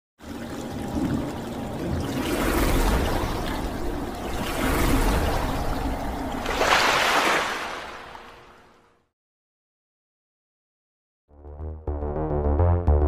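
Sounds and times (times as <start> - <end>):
water splashing and rushing: 0.2 - 8.9.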